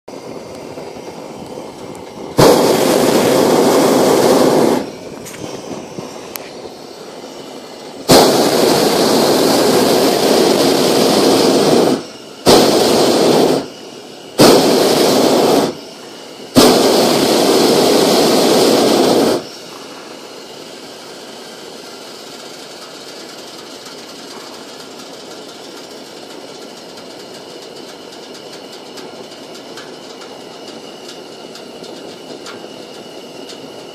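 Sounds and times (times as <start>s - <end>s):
propane burner roaring: 0.1s - 33.9s
steady background noise: 0.1s - 33.9s.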